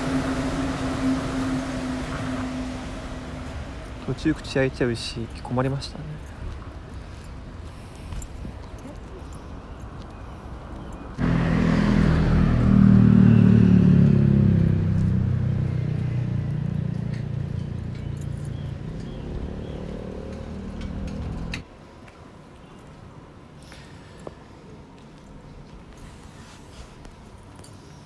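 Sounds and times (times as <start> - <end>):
vehicle engine droning: 0.0 - 6.0, 11.1 - 21.6.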